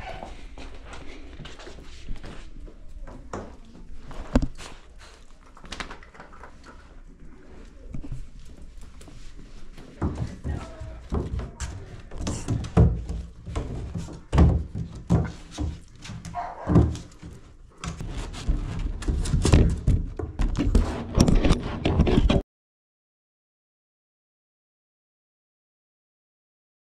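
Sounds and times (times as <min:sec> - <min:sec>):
puppies thumping and knocking: 0:09.8 - 0:22.4
puppy yip: 0:16.4 - 0:16.7.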